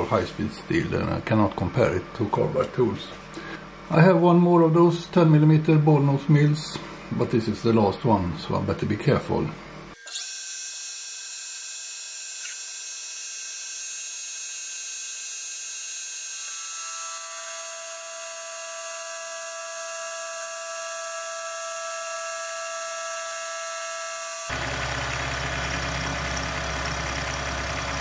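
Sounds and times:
milling machine cutting steel: 0:10.0 - 0:25.4.

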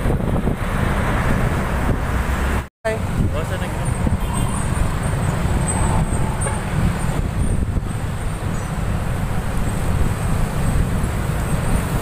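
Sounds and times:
vehicle engines rumbling: 0:00.0 - 0:12.0.

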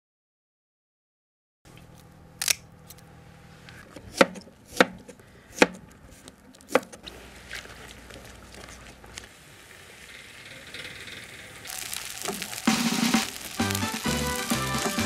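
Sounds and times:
knife chopping on cutting board: 0:04.1 - 0:05.8, 0:06.7 - 0:07.0.

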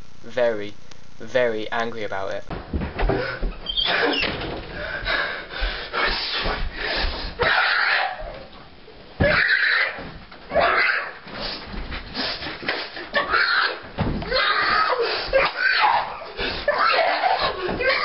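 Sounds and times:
thumps on a bed: 0:02.5 - 0:03.6
boy screaming and yelling: 0:13.2 - 0:18.0.

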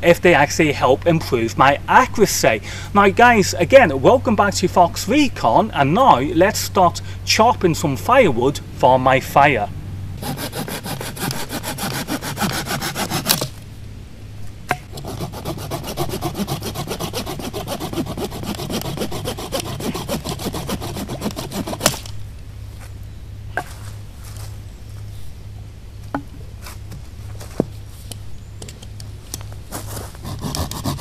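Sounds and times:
hand saw cutting branch: 0:10.2 - 0:13.6, 0:14.9 - 0:22.1, 0:30.0 - 0:31.0.

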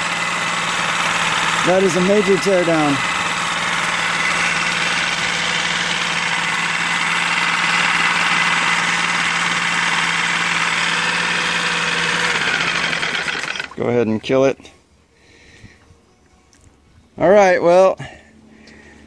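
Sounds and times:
outboard motor running: 0:00.0 - 0:14.3.

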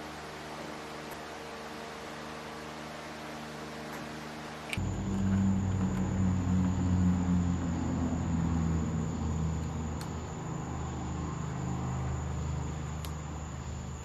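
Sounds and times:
string trimmer engine running: 0:04.8 - 0:10.0.

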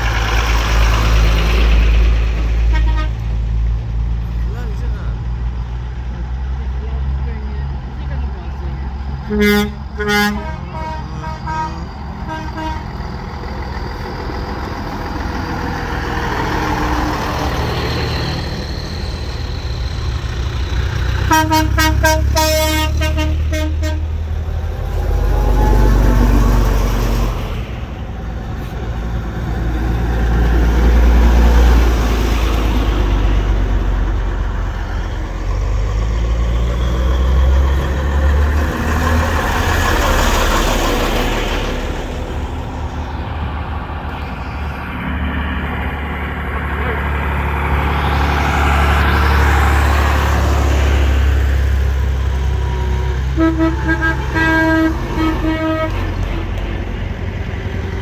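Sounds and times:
vehicle engines rumbling past: 0:00.0 - 0:58.0
horn tooting: 0:02.6 - 0:03.3, 0:09.2 - 0:13.0, 0:21.2 - 0:24.3, 0:52.3 - 0:56.6
long horn blast: 0:02.6 - 0:03.3, 0:09.2 - 0:13.0, 0:21.2 - 0:24.3, 0:52.6 - 0:56.7.

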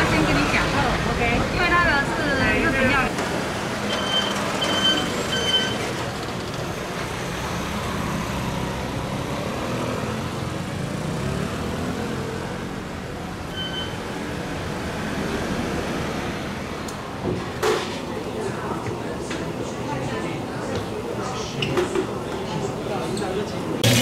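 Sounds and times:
scooters and cars passing: 0:00.0 - 0:18.4
short high beep: 0:13.5 - 0:14.0.

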